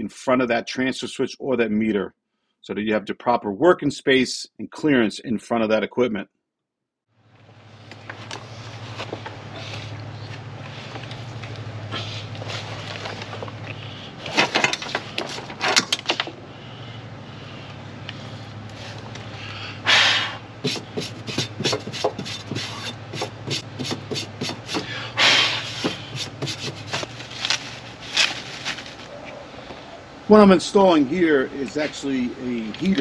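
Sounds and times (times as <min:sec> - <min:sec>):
steady low hum: 0:07.2 - 0:33.0
packaging rustling: 0:12.3 - 0:13.6, 0:26.6 - 0:29.2.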